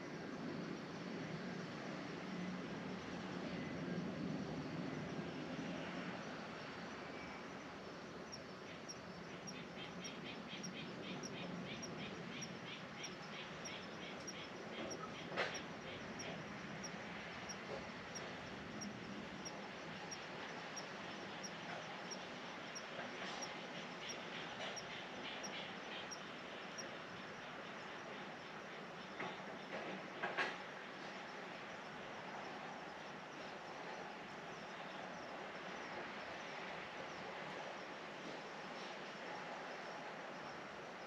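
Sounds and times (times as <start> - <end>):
crickets chirping: 0.0 - 41.0.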